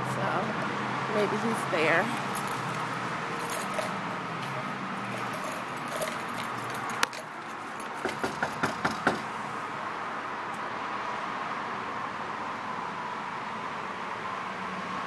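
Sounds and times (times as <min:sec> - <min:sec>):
knuckles knocking on door: 0:08.1 - 0:09.3.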